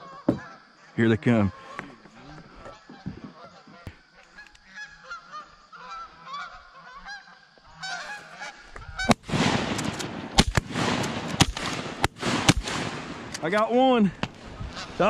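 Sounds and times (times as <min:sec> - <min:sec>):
geese honking: 0:00.0 - 0:09.2, 0:14.6 - 0:15.0.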